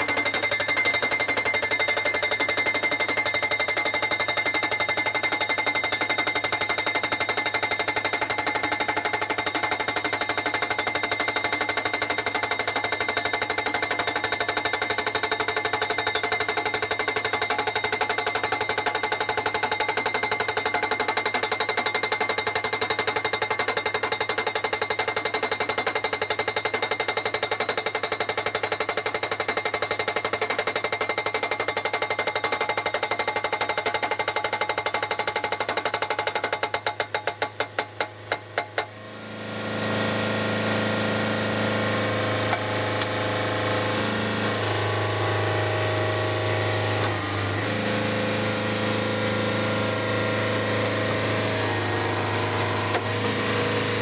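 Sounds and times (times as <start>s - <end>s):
metallic ringing: 0.0s - 28.7s
hydraulic hammer pounding post: 0.0s - 39.0s.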